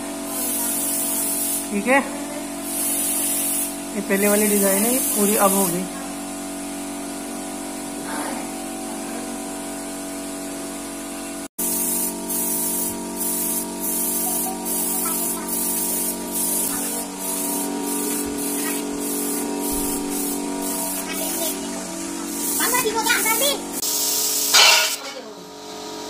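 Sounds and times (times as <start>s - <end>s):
paint spray gun hissing: 0.2s - 1.8s, 2.6s - 5.9s, 11.6s - 25.0s
steady machine hum: 3.6s - 26.0s.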